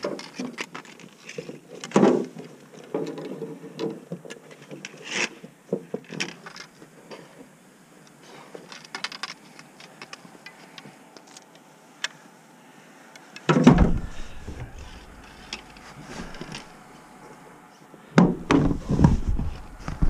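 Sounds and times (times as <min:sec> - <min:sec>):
heavy bump on microphone: 0:13.7 - 0:15.2.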